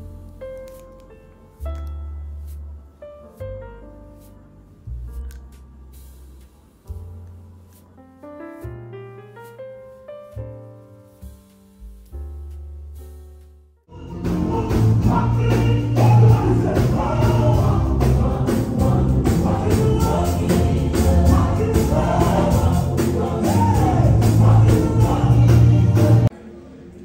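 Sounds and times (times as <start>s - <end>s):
bass guitar: 0.0s - 8.0s, 10.4s - 26.3s
steady beat: 11.2s - 26.3s
keyboard: 11.9s - 27.0s
group singing together: 13.9s - 27.0s.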